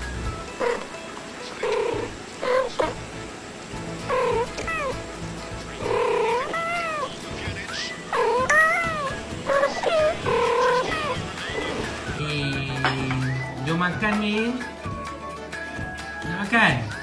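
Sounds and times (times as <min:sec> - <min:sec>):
cats meowing and trilling: 0:04.1 - 0:05.0, 0:05.8 - 0:07.1, 0:08.2 - 0:11.8.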